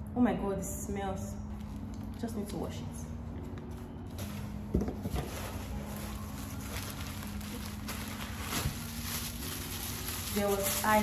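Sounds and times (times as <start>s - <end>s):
plastic packaging crinkling: 4.1s - 11.0s.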